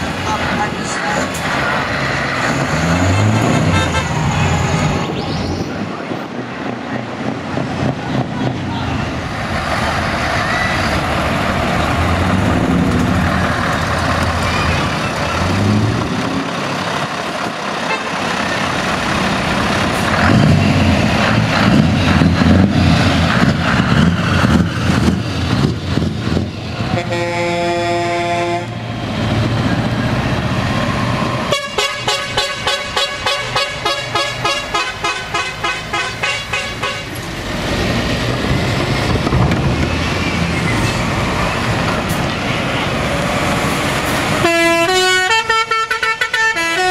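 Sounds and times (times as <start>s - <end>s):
truck diesel engines passing: 0.0s - 46.9s
truck horn long note: 17.9s - 18.2s, 26.9s - 28.8s, 31.5s - 37.1s, 44.4s - 46.9s.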